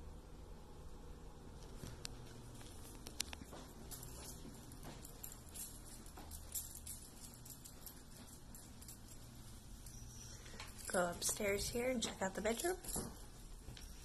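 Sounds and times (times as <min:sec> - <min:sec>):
low steady hum: 0:00.0 - 0:14.0
faint footsteps: 0:01.6 - 0:14.0.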